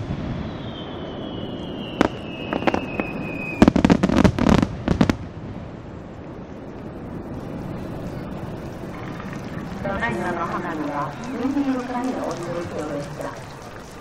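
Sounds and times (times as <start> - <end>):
falling firework whistle: 0.0 - 5.1
firework cracks and bangs: 0.0 - 5.9.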